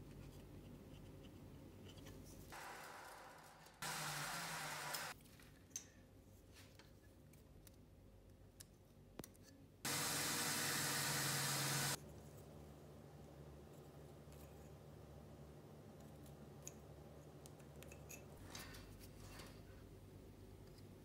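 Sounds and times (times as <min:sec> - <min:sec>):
power tool motor running: 0:02.6 - 0:05.2, 0:09.9 - 0:12.0.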